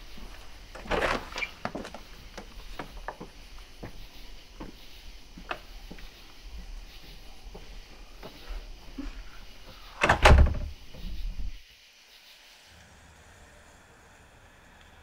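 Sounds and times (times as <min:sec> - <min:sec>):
soft footsteps: 0:00.0 - 0:09.9
wooden door opening: 0:00.7 - 0:04.0, 0:05.4 - 0:06.0, 0:09.6 - 0:11.6.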